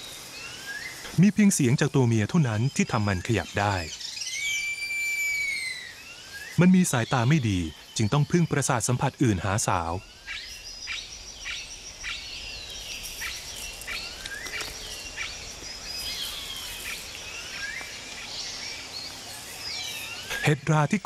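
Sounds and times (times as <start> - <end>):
high insect drone: 0.0 - 21.0
whistled bird calls: 3.3 - 8.8.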